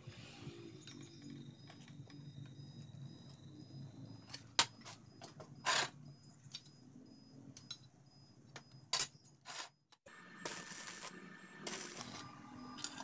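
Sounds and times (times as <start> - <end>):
metal scrape: 5.6 - 6.0.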